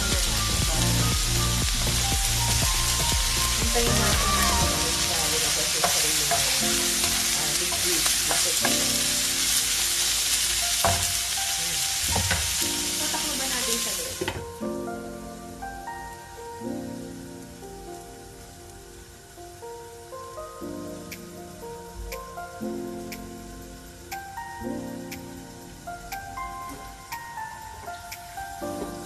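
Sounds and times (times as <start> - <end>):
vegetables sizzling in a wok: 0.0 - 20.1.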